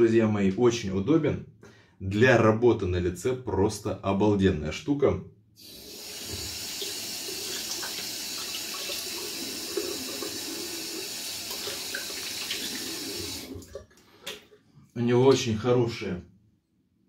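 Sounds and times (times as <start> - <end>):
tap water running into sink: 5.6 - 14.6.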